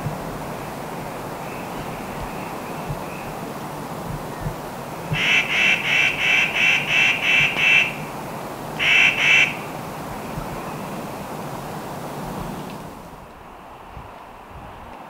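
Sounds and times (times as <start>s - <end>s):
animal harsh call: 5.1s - 8.0s, 8.8s - 9.7s.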